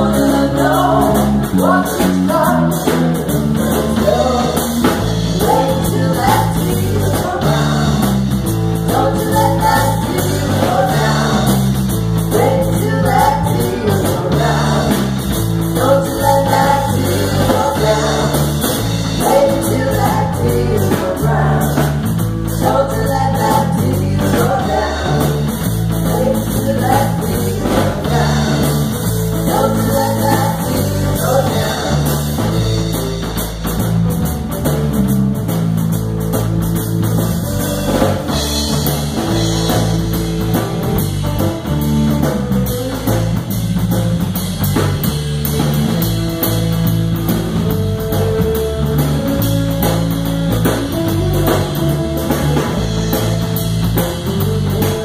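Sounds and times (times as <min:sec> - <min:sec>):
women singing: 0:00.0 - 0:32.7
bass guitar: 0:00.0 - 0:55.0
drum kit: 0:00.0 - 0:55.0
electric guitar: 0:00.0 - 0:55.0.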